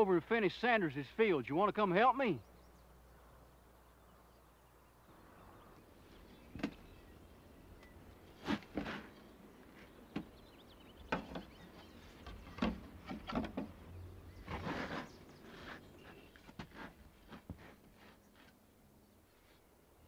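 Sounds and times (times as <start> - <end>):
knocks and rustles on wooden boards: 6.5 - 6.9, 8.4 - 10.4, 11.0 - 15.1.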